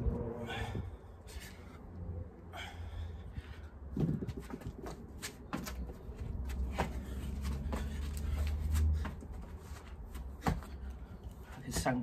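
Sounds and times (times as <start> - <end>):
wind rumble on microphone: 0.0 - 1.2, 3.2 - 4.9
feet and hands thudding on paving: 3.9 - 12.0.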